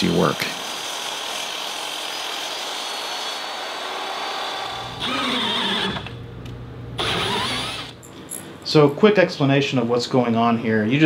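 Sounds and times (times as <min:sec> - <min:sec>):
miter saw cutting aluminum: 0:00.0 - 0:06.2, 0:07.0 - 0:08.0
cordless drill running: 0:00.2 - 0:06.2, 0:07.0 - 0:08.0.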